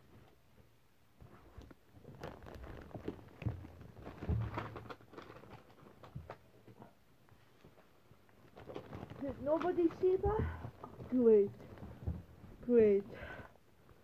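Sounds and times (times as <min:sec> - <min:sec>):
wrapping paper crackling and tearing: 0:02.0 - 0:06.4, 0:08.4 - 0:10.1
dull thumps: 0:08.8 - 0:12.7.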